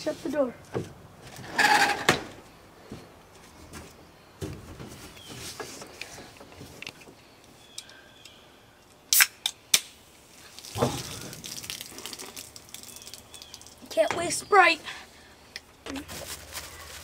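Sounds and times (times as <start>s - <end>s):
can opening crack and hiss: 9.1s - 10.0s.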